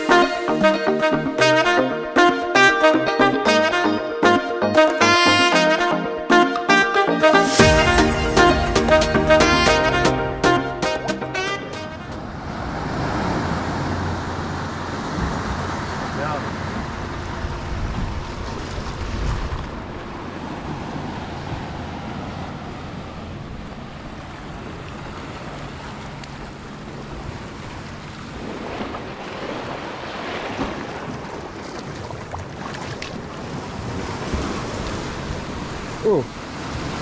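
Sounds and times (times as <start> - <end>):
wind buffeting microphone: 12.2 - 25.8
waves washing over rocks: 12.2 - 37.0.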